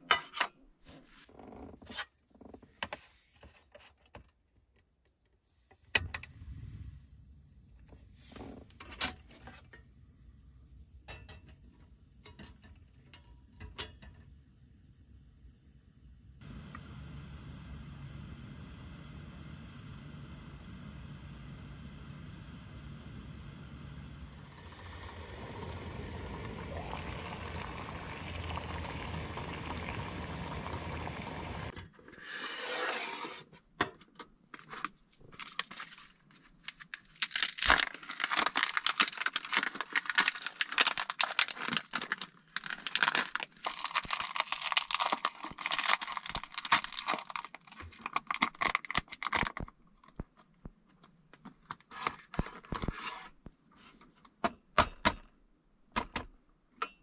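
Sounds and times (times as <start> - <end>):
gas stove burner hissing: 9.8 - 31.8
crinkling and tearing crackles: 34.6 - 53.0.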